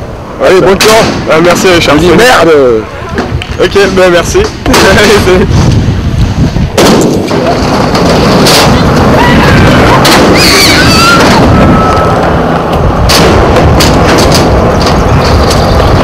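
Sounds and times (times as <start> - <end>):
skateboard wheels rolling on concrete: 0.0 - 16.0
wind buffeting microphone: 0.0 - 16.0
wheels knocking over joints: 7.1 - 16.0.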